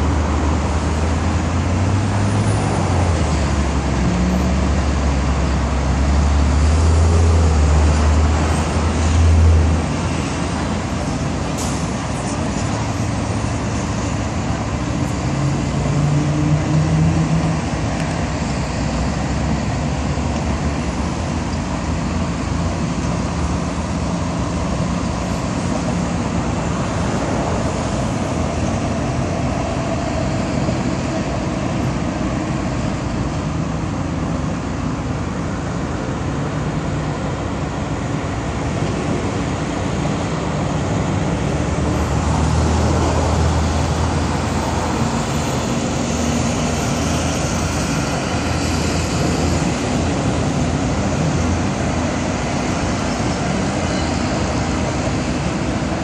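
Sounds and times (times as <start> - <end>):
road traffic noise: 0.0 - 56.0.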